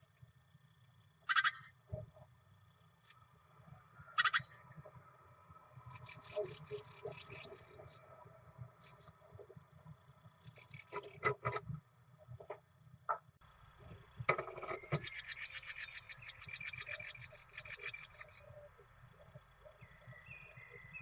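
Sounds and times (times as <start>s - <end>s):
birds scraping and knocking in nest box: 14.2s - 18.2s
nestlings cheeping: 14.8s - 18.8s.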